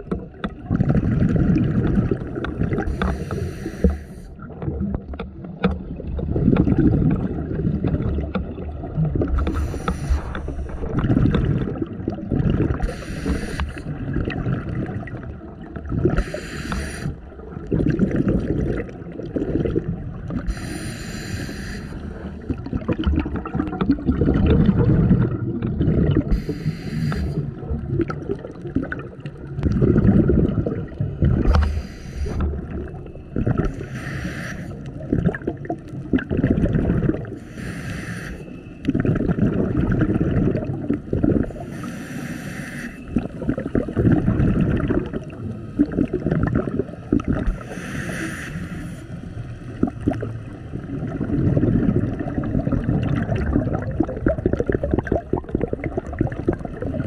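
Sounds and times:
exhaled bubbles rumbling: 0.0s - 37.8s, 38.4s - 42.3s, 43.0s - 57.0s
regulator hiss on inhalation: 2.9s - 4.3s, 9.4s - 10.6s, 12.8s - 13.8s, 16.2s - 17.2s, 20.5s - 22.1s, 26.3s - 27.5s, 31.5s - 32.4s, 33.7s - 34.8s, 37.4s - 38.6s, 41.6s - 43.2s, 47.5s - 49.4s.

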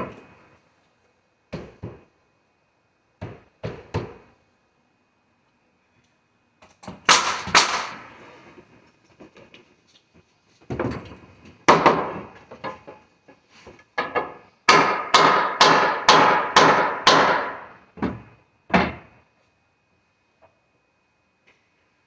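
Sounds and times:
nail gun firing into wood: 6.8s - 8.0s, 14.7s - 17.7s.

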